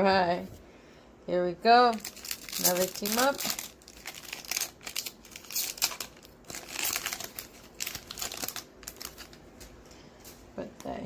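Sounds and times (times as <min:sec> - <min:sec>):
foil wrapper crinkling: 0:01.8 - 0:09.8.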